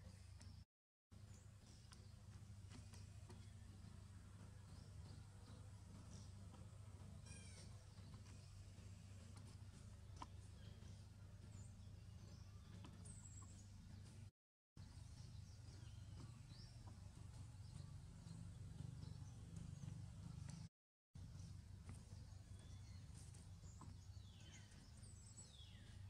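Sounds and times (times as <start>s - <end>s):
low steady hum: 0.0s - 26.0s
small bird chirps: 7.0s - 8.6s.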